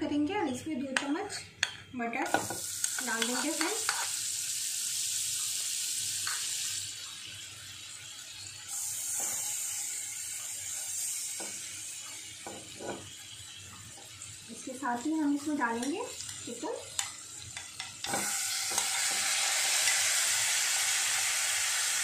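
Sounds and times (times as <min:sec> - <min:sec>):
metal spoon scraping and tapping pan: 0:01.0 - 0:04.2, 0:12.4 - 0:13.1, 0:15.8 - 0:20.1
butter sizzling in a pan: 0:02.2 - 0:22.0.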